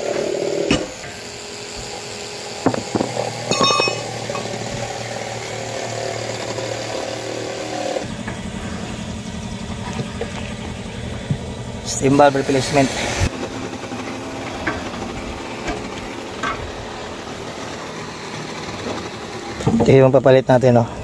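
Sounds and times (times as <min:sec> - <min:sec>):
engine humming: 0:01.1 - 0:19.7
tools knocking against tyre: 0:02.6 - 0:04.4.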